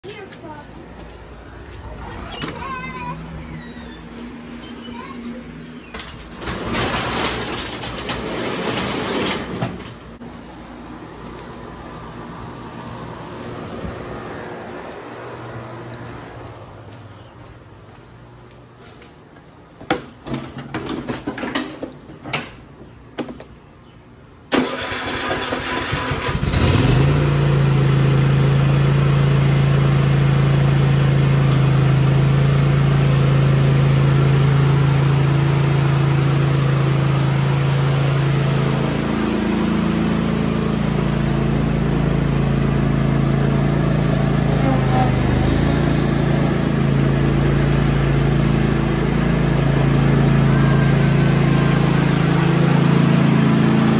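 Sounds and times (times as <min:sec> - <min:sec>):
riding mower engine running: 0:00.1 - 0:17.1, 0:24.5 - 0:53.9
electric starter cranking engine: 0:24.5 - 0:27.4.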